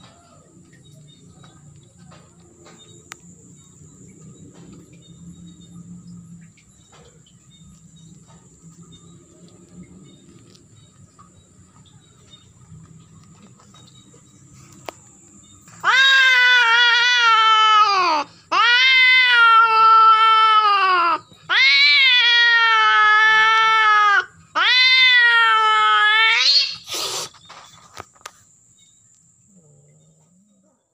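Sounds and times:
cat yowling: 15.7 - 27.2.

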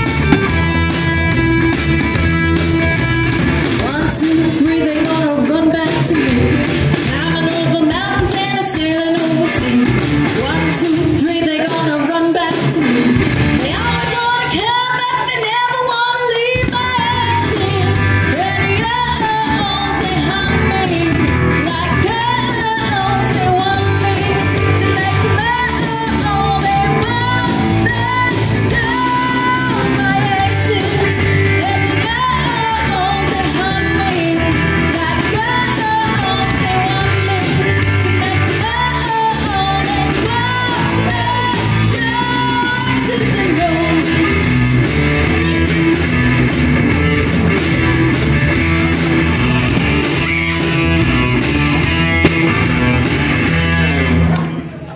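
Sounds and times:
bass guitar: 0.0 - 54.9
drums: 0.0 - 54.9
lead vocalist singing: 3.8 - 44.4.

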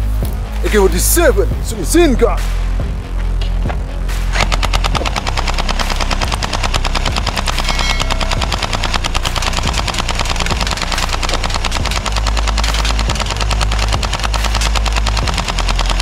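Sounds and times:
toy blaster firing rapidly: 4.5 - 16.0.

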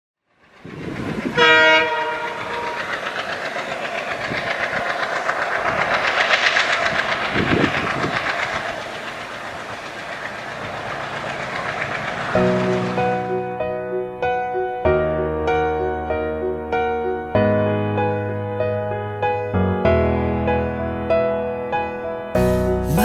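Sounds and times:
train rumbling on rails: 0.2 - 23.0
train horn: 1.3 - 2.9
music: 12.4 - 23.0.

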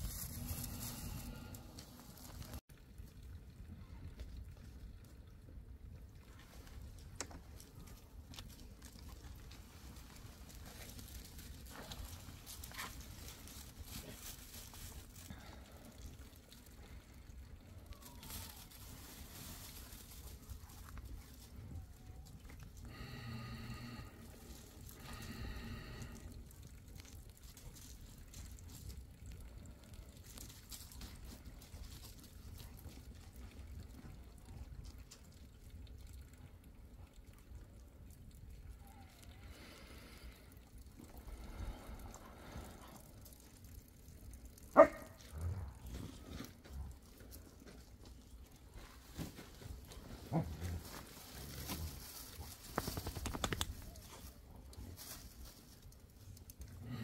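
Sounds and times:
fire crackling: 0.0 - 3.6.

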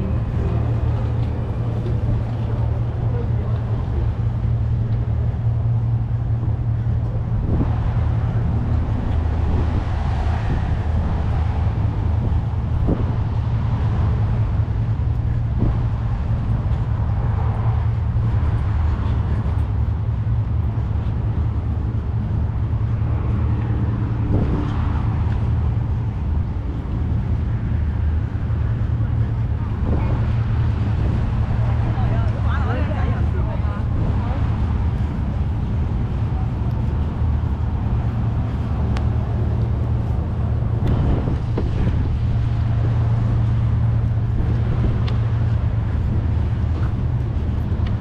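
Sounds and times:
low engine hum: 0.0 - 48.0.

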